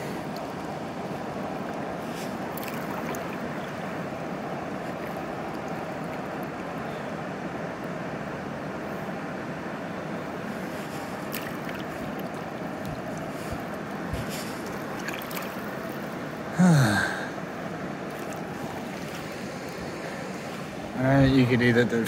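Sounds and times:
river water rushing: 0.0s - 22.0s
man sighing or grunting: 16.5s - 17.4s.

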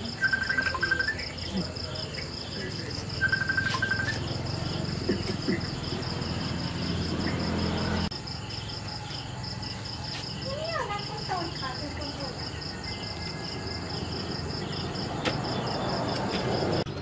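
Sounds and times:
rapid high chirps: 0.0s - 7.6s
crickets chirping: 0.0s - 17.0s.

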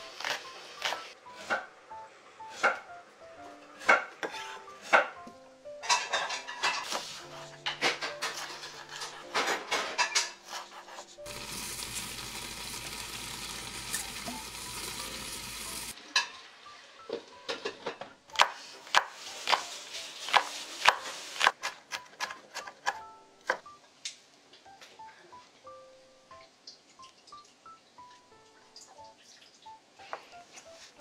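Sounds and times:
cooking hiss: 10.1s - 16.2s, 18.5s - 21.6s.

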